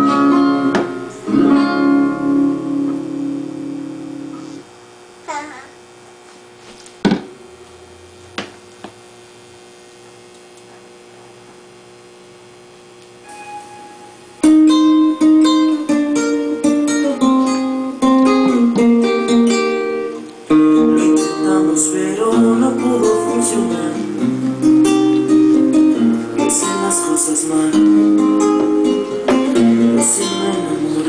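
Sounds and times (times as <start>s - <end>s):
acoustic guitar picked melody: 0.0s - 4.6s, 13.2s - 31.0s.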